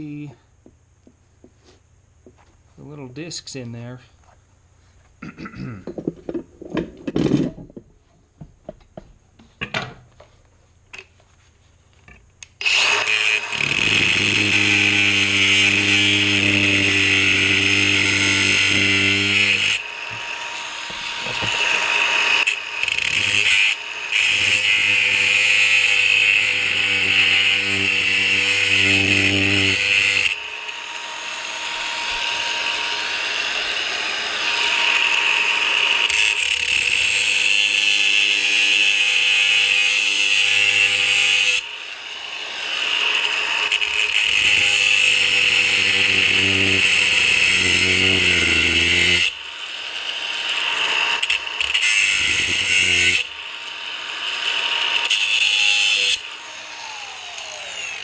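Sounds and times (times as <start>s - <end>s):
angle grinder cutting metal: 12.1s - 58.0s.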